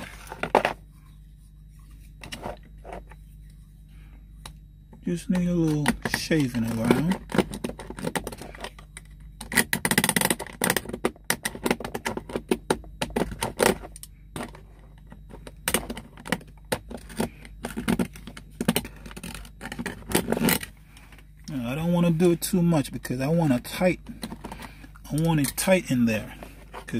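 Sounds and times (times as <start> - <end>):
knife scraping plastic: 13.1 - 21.2.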